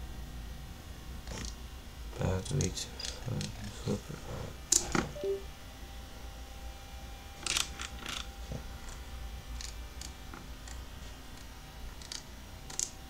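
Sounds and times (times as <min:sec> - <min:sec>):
falling two-note electronic beep: 0:05.2 - 0:05.5.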